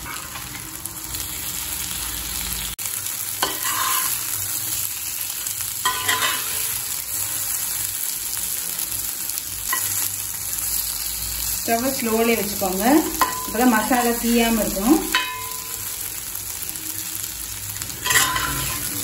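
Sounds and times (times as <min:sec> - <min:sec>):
slices sizzling in oil: 0:00.0 - 0:19.0
metal spatula scraping pan: 0:03.4 - 0:04.2, 0:05.8 - 0:06.8, 0:18.0 - 0:19.0.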